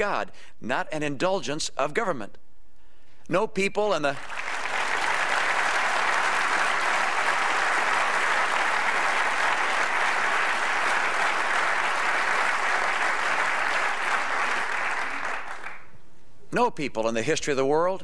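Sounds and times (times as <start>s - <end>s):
audience applause: 4.2s - 15.9s.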